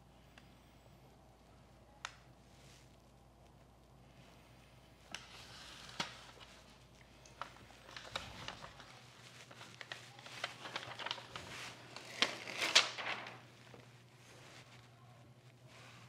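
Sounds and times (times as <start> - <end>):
rustling: 4.2 - 16.0.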